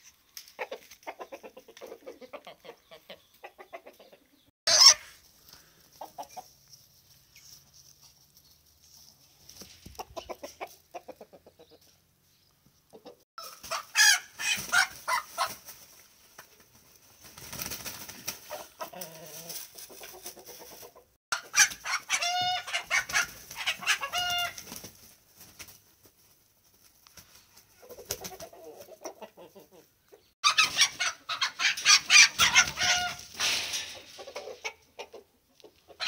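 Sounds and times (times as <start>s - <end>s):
chickens clucking and squawking: 0.4s - 8.2s, 9.6s - 36.0s
wing flapping: 16.6s - 18.6s.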